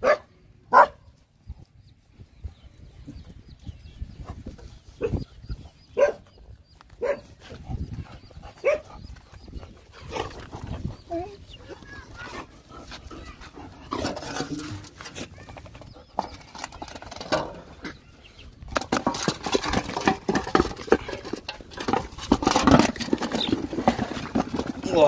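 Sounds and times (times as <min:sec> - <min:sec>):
dogs eating from metal bowl: 0:11.8 - 0:17.6, 0:18.8 - 0:25.0.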